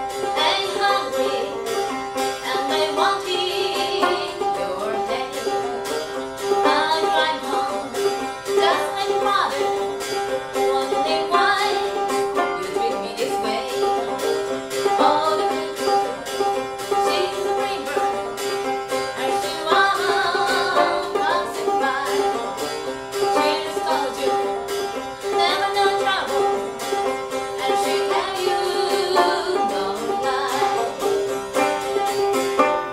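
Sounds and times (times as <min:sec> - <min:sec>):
banjo picking: 0:00.0 - 0:32.9
woman singing: 0:00.2 - 0:09.9, 0:10.5 - 0:31.2.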